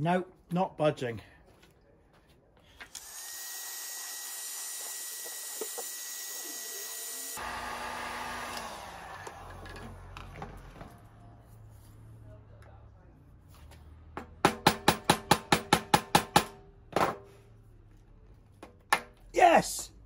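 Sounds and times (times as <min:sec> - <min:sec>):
heat gun blowing air: 0:02.9 - 0:09.4.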